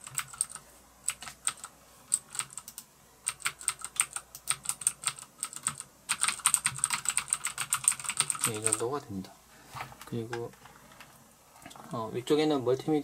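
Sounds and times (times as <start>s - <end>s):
mechanical keyboard keys clicking: 0.0s - 8.8s.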